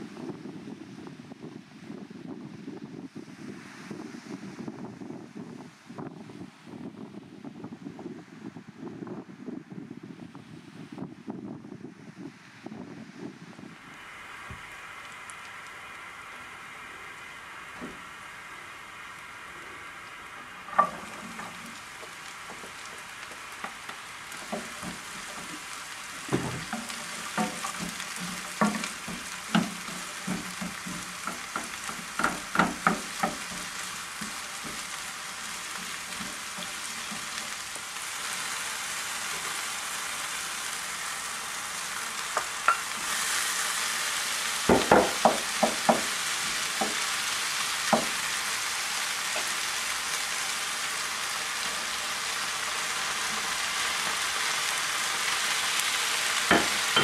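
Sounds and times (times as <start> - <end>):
vegetables sizzling in a frying pan: 12.7 - 57.0
wooden spatula tapping pan: 20.6 - 37.6, 44.7 - 46.2, 46.8 - 47.0, 47.9 - 48.2, 56.5 - 57.0.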